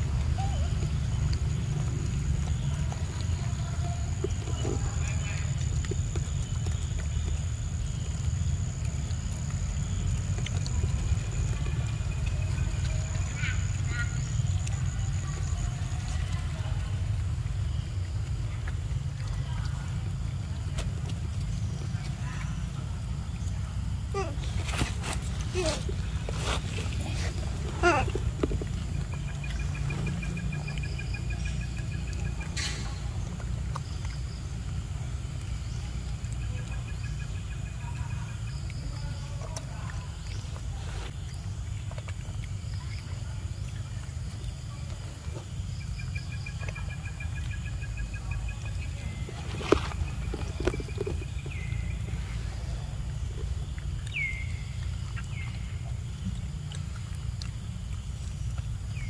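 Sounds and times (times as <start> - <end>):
high animal calls: 24.1 - 28.4.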